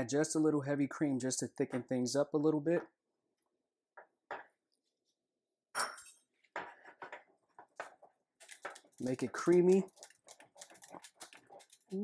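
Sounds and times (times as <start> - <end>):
whisk clinking and scraping saucepan: 7.8 - 12.0.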